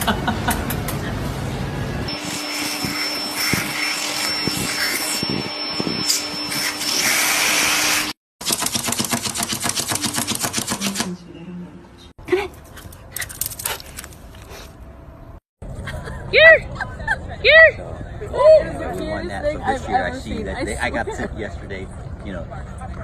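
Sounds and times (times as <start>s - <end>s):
vacuum cleaner running: 2.1s - 8.2s.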